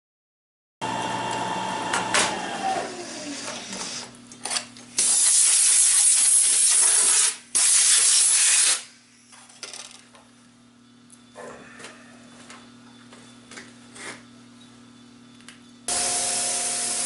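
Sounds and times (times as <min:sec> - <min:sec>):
compressed air blow gun hissing: 0:15.9 - 0:17.0.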